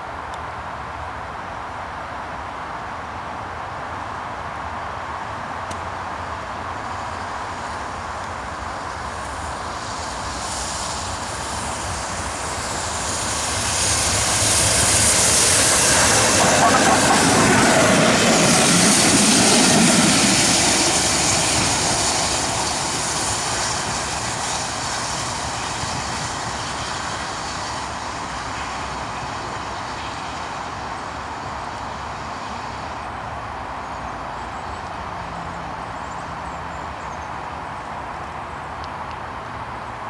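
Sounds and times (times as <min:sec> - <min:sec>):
train wheels rumbling on rails: 0:05.2 - 0:36.2.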